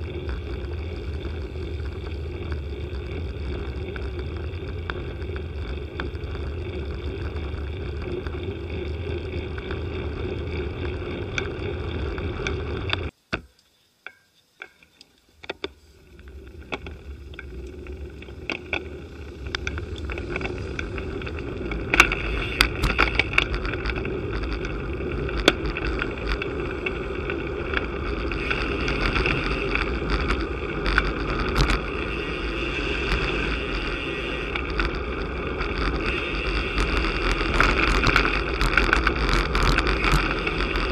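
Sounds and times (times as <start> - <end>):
low road rumble: 0.0 - 13.2, 15.3 - 40.9
wind rushing over microphone: 16.1 - 40.9.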